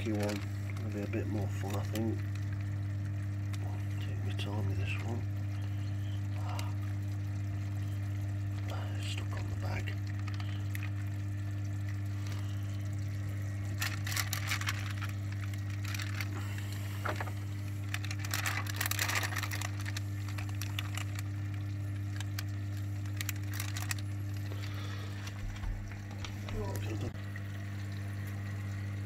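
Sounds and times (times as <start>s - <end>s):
plastic bag crinkling: 0.0s - 2.6s, 9.6s - 11.1s, 12.1s - 27.0s
steady low hum: 0.0s - 29.0s
water sloshing in a bucket: 0.0s - 29.0s.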